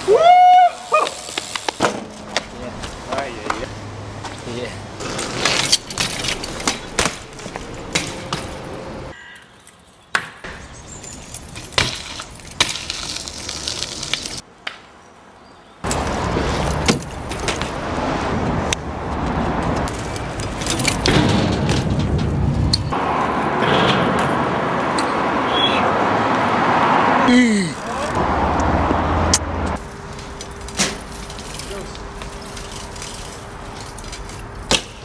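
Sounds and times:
bike tyres rolling: 0:00.0 - 0:14.4, 0:15.8 - 0:25.5, 0:27.7 - 0:35.0
bikes rattling: 0:00.0 - 0:14.4, 0:15.8 - 0:25.3, 0:27.4 - 0:35.0
knocks of bike landings: 0:01.0 - 0:03.6, 0:11.6 - 0:13.1, 0:20.6 - 0:22.9, 0:34.7 - 0:35.0.

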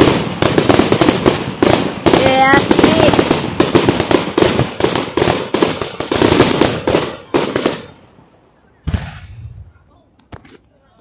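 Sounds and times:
fireworks bangs and crackles: 0:00.0 - 0:10.6
firework boom with low rumble: 0:08.8 - 0:09.7.

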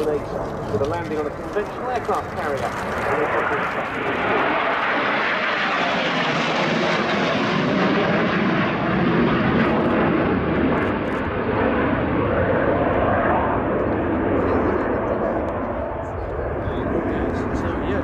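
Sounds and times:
jets flying past: 0:00.0 - 0:18.0.

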